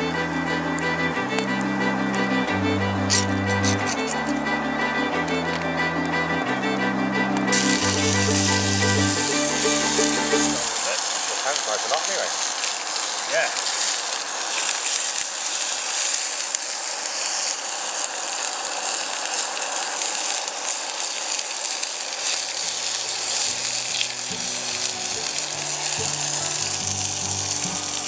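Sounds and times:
soft music with low notes: 0.0s - 10.8s, 23.0s - 28.0s
meat sizzling in frying pan: 7.5s - 28.0s.

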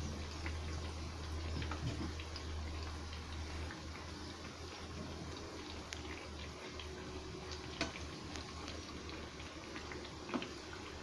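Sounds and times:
fritters sizzling in hot oil: 0.0s - 11.0s.

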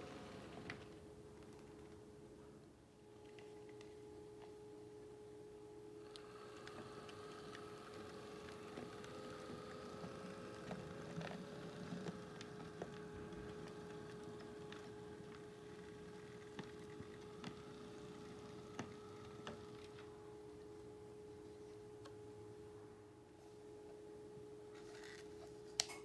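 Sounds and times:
steady hum: 0.0s - 26.0s
model train motor whine: 6.0s - 19.9s.

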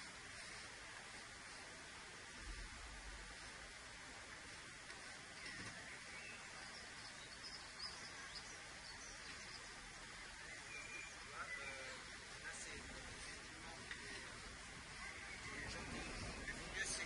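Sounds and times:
steady hiss: 0.0s - 17.0s
faint high chirps: 5.3s - 12.1s.

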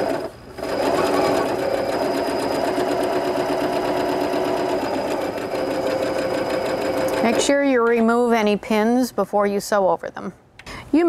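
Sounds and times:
sewing machine running: 0.0s - 7.6s.

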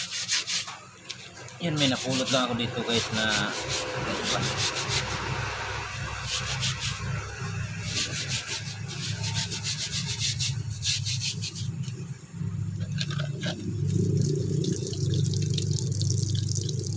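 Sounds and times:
brush scrubbing wet stone: 0.0s - 0.8s, 1.6s - 11.9s
steady low hum: 0.8s - 16.9s.

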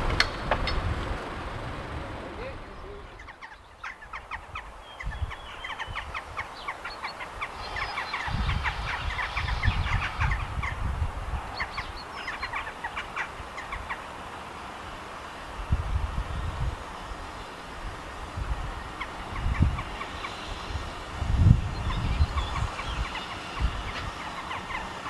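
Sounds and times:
low rumble: 0.0s - 3.4s
birds chirping: 0.0s - 25.0s.

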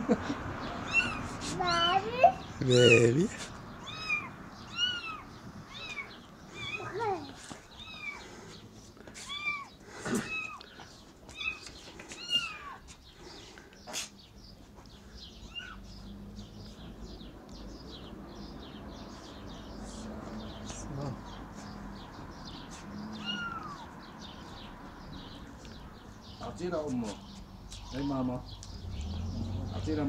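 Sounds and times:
kitten mewing: 9.2s - 10.6s, 23.2s - 23.8s.

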